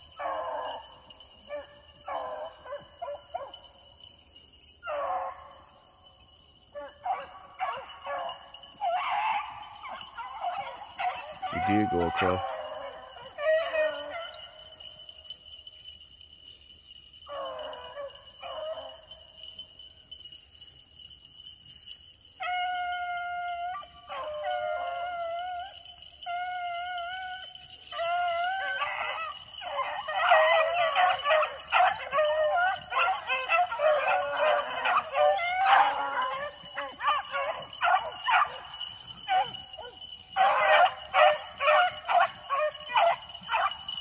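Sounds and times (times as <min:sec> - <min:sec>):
pack of dogs baying: 0:00.0 - 0:16.0, 0:17.2 - 0:19.6, 0:22.3 - 0:44.0
dog howling: 0:06.8 - 0:14.8, 0:17.3 - 0:19.0, 0:22.4 - 0:44.0.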